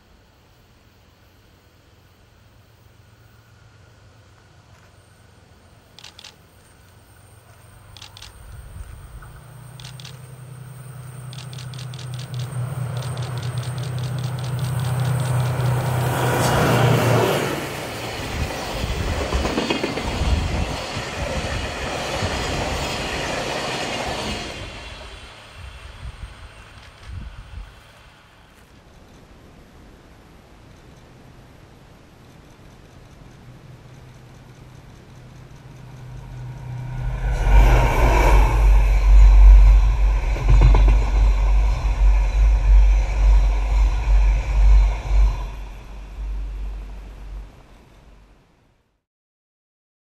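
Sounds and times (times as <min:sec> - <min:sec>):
train wheels rumbling on rails: 0:06.0 - 0:29.3, 0:32.4 - 0:48.0
diesel locomotive engine passing: 0:06.8 - 0:28.5, 0:34.6 - 0:48.5.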